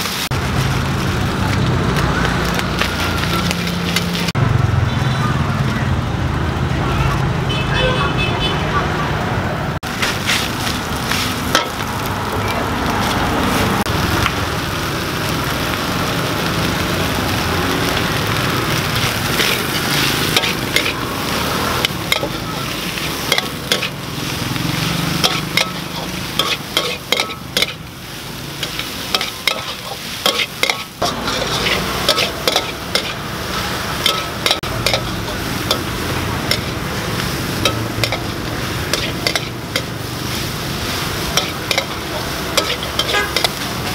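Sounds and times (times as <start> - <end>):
stir-fry sizzling in wok: 0.0 - 7.6, 9.8 - 43.9
metal spatula scraping wok: 2.5 - 4.4, 9.9 - 12.0, 17.8 - 43.9.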